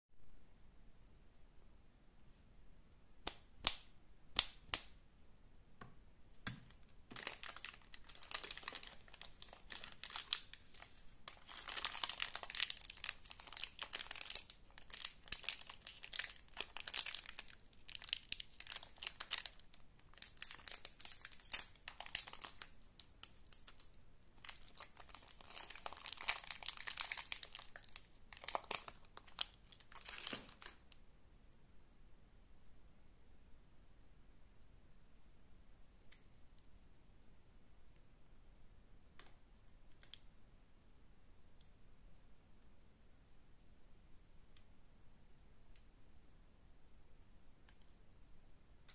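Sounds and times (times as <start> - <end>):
wrappers crinkling and tearing: 7.1 - 30.8.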